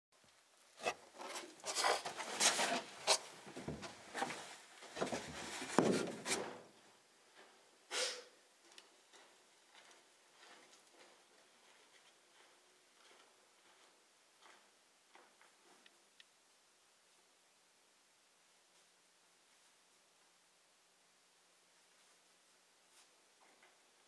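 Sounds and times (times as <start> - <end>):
footsteps in sand: 8.8 - 15.7.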